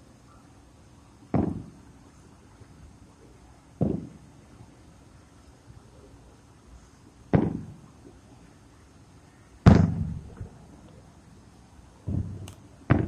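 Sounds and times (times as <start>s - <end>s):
distant fireworks booming: 1.2s - 2.0s, 3.8s - 4.4s, 7.3s - 8.2s, 9.6s - 11.1s, 12.0s - 13.0s.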